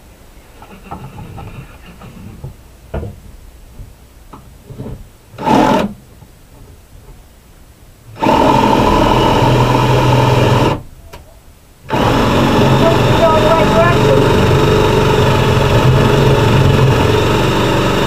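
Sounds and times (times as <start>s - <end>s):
drill boring into wood: 5.4s - 6.0s, 8.2s - 10.8s, 11.9s - 18.0s.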